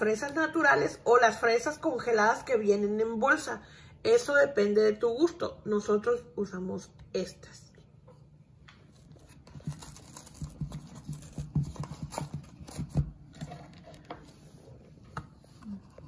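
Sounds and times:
cardboard carton crackling open: 9.0s - 14.0s.

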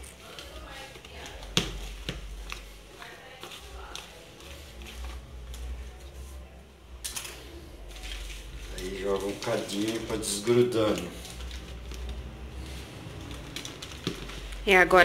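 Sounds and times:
hand kneading sticky dough: 0.0s - 6.6s, 7.5s - 15.0s.

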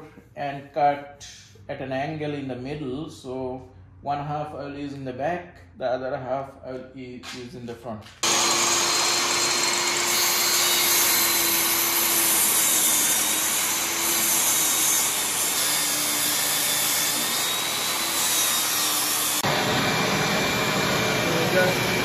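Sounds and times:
table saw ripping wood: 8.2s - 22.0s.

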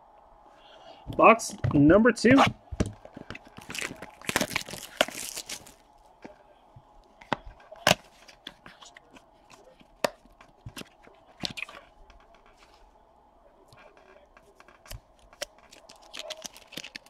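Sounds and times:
plastic wrapper crinkling and tearing: 3.0s - 5.9s, 14.6s - 17.0s.

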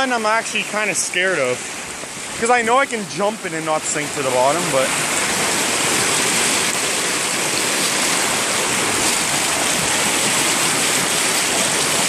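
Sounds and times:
white water rushing over rocks: 0.0s - 12.0s.

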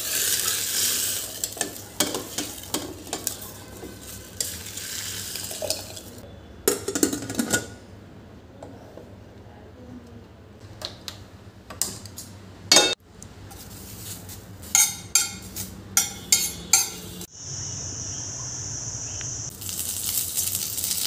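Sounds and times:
oil sizzling: 0.0s - 6.2s, 19.3s - 21.0s
spatula clinking on frying pan: 14.8s - 17.1s
steady high hiss: 17.2s - 21.0s.

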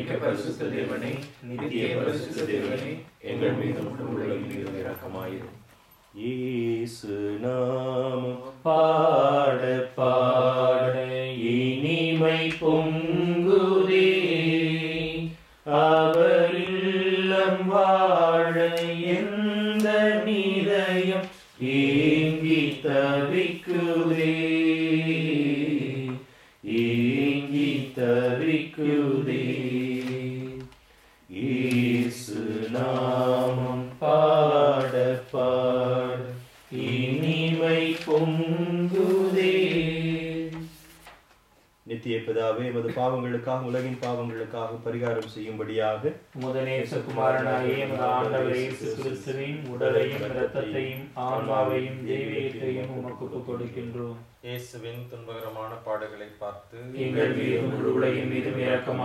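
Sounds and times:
man chanting a prayer: 41.9s - 59.0s.

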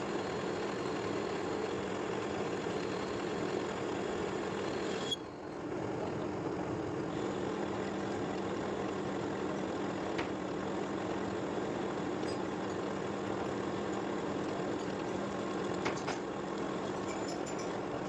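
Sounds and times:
metal lathe humming: 0.0s - 5.6s.

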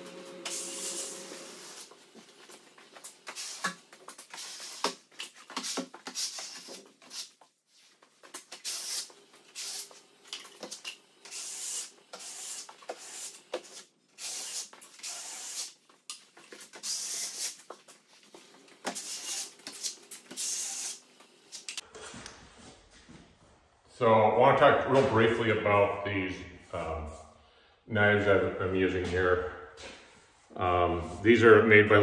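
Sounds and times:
blade scraping compound on ceiling: 10.6s - 15.8s, 16.5s - 17.6s, 18.8s - 22.9s.

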